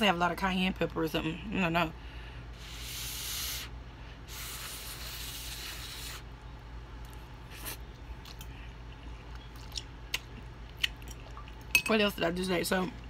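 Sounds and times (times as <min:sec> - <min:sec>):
wet chewing with mouth smacks: 0:07.0 - 0:11.8.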